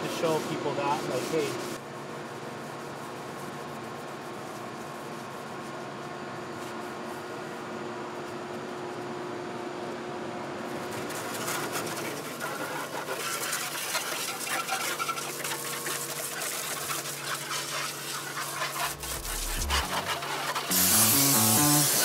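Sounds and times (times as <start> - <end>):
scuff pad scrubbing metal: 0.0 - 1.8, 14.5 - 22.0.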